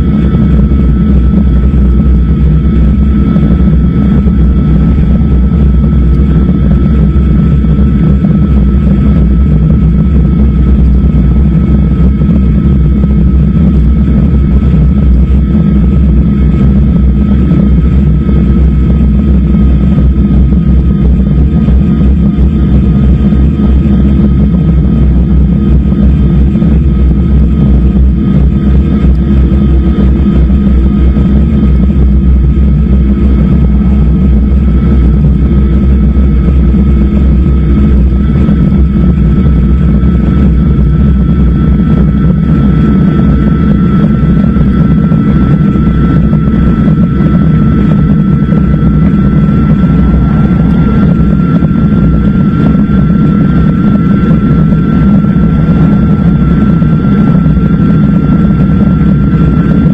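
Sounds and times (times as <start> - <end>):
thin steady whine: 0.0 - 59.9
wind on microphone: 0.0 - 59.9
road rumble: 48.6 - 57.4.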